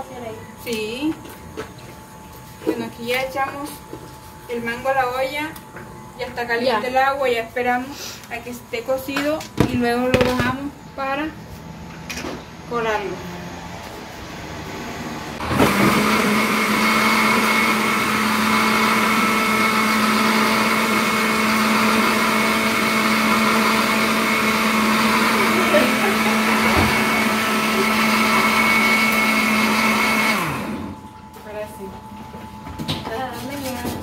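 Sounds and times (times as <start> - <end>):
blender running: 15.0 - 31.0.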